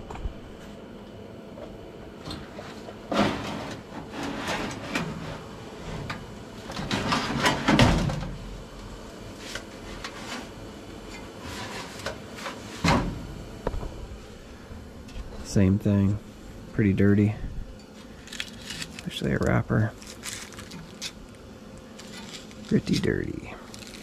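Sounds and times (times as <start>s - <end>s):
metal scraping and clunking: 3.1s - 6.2s, 6.8s - 8.1s.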